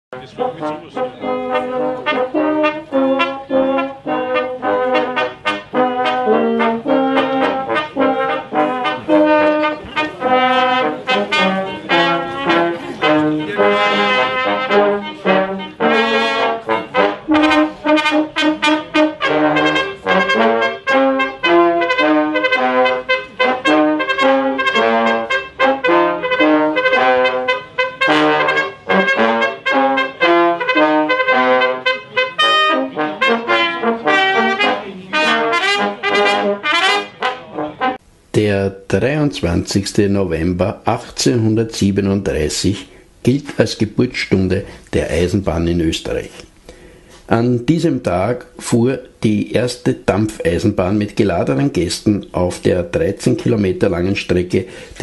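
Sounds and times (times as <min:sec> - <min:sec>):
small brass and clarinet ensemble: 0:00.1 - 0:38.0.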